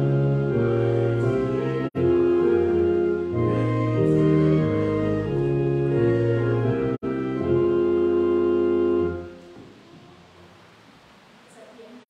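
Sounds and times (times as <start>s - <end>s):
organ playing held chords: 0.0s - 9.6s.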